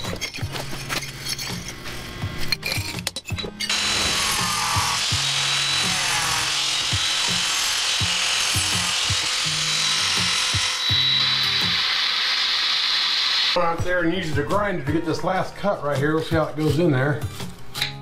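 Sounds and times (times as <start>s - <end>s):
angle grinder cutting brick: 3.7s - 13.6s.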